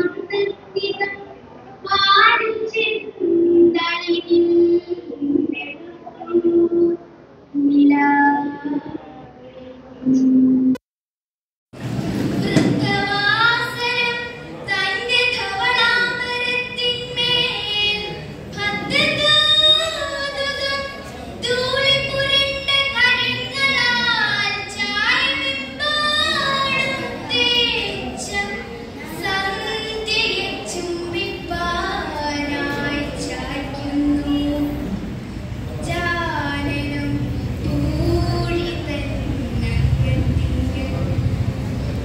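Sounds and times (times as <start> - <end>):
girl reciting a sung poem: 0.0 - 10.2, 12.4 - 41.4.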